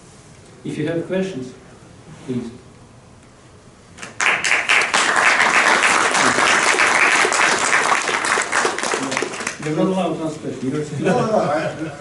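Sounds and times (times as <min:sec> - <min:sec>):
audience applauding: 0:04.0 - 0:09.8.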